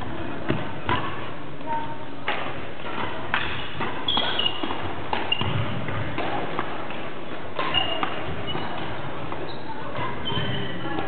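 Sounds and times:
rackets hitting shuttlecocks: 2.2s - 11.0s
shoes squeaking on wooden floor: 4.0s - 5.8s, 7.6s - 11.0s.

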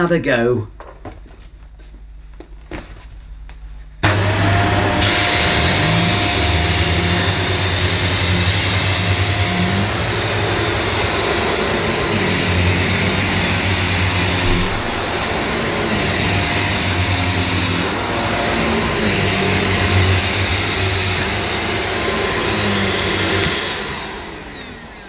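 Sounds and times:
vacuum cleaner motor whine: 4.0s - 25.0s.

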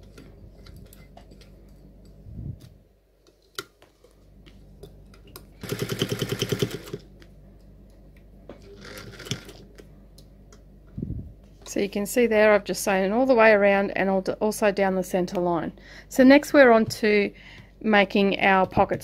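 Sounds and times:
sewing machine stitching: 5.6s - 7.0s, 8.6s - 9.7s.

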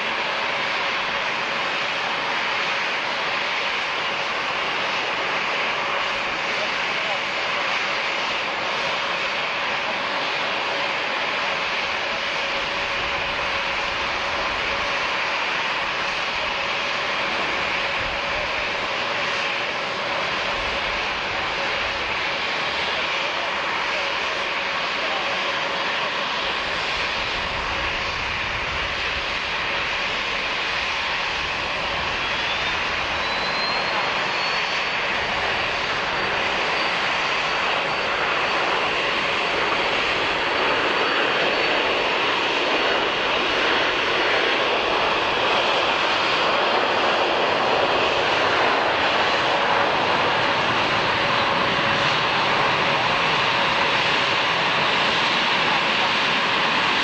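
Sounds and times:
airplane engines running: 0.0s - 57.0s
high engine whine: 0.0s - 57.0s.

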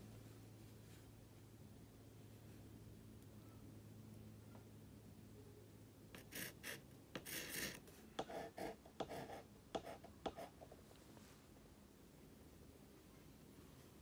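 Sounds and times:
pencil scratching on surface: 6.2s - 10.8s.

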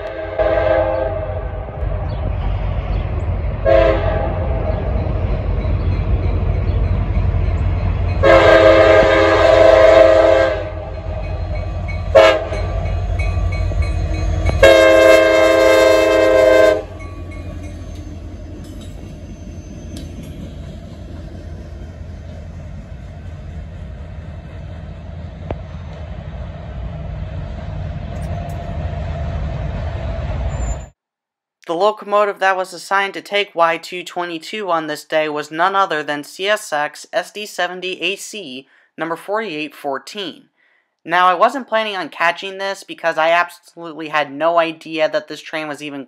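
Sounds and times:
locomotive air horn blasts: 0.0s - 1.7s, 3.6s - 4.7s, 8.2s - 11.1s, 12.1s - 12.9s, 14.5s - 17.0s
locomotive low rumble: 0.0s - 31.0s
passing train: 0.0s - 31.0s.

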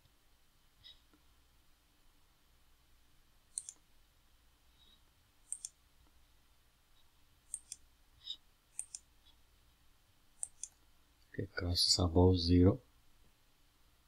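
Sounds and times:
computer mouse button clicking: 3.5s - 3.8s, 5.5s - 5.8s, 7.5s - 7.8s, 8.8s - 9.0s, 10.4s - 10.8s.

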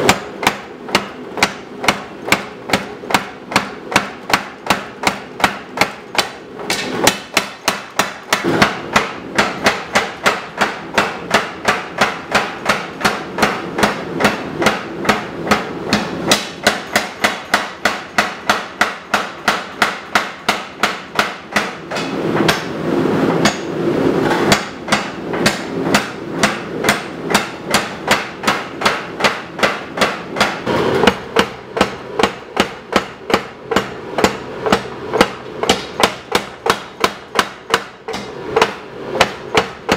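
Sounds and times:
power hammer pounding hot steel: 0.0s - 39.9s.

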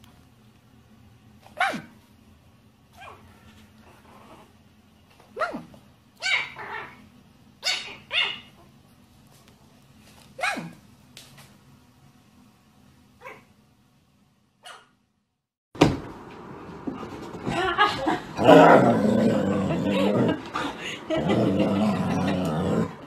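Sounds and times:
puppy barking: 1.6s - 1.9s, 5.4s - 7.0s, 7.6s - 8.6s, 10.4s - 10.8s, 13.2s - 13.5s, 14.6s - 15.0s.

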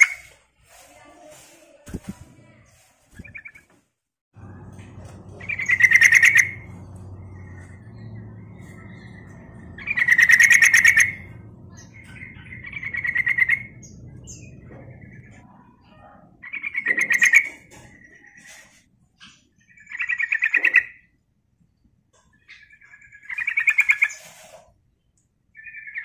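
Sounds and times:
bird chattering call: 5.3s - 15.4s.

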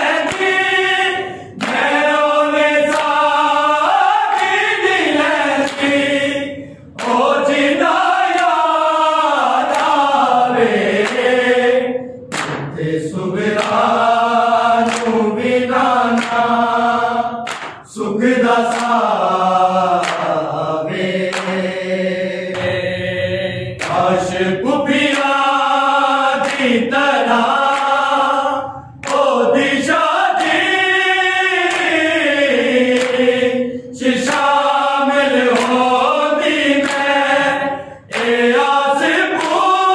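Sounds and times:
men chanting in unison: 0.0s - 39.9s
breaths: 1.2s - 1.6s, 6.5s - 7.0s, 37.7s - 38.1s.

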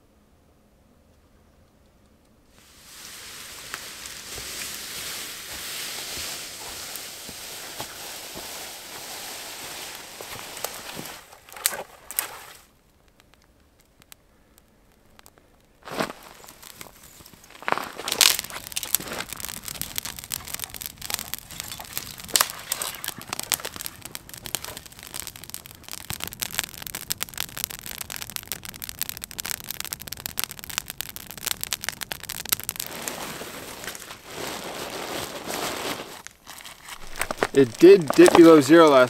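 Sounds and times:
campfire crackling and popping: 2.1s - 39.0s
tent fabric rustling: 2.6s - 12.6s, 32.9s - 38.6s.

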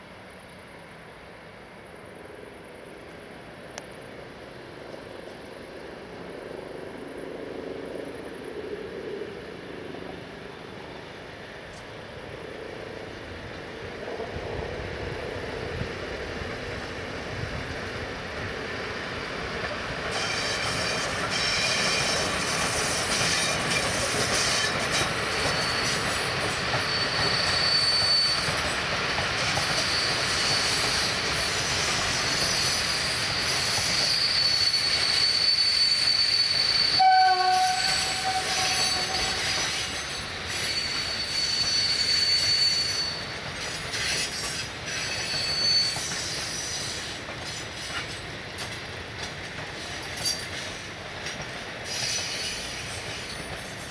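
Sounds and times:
wheel on rail rolling noise: 1.9s - 53.9s
high wheel squeal: 20.1s - 48.2s, 51.8s - 53.9s.

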